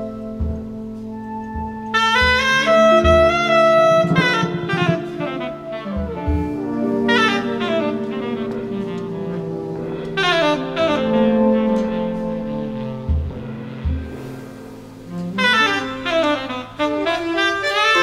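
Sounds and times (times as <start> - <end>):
jazz horns playing held chords: 0.0 - 18.0
drum thuds: 0.3 - 8.2, 13.0 - 15.6.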